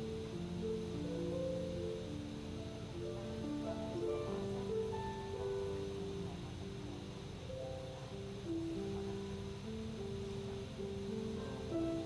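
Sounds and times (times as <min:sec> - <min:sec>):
harp melody: 0:00.0 - 0:12.0.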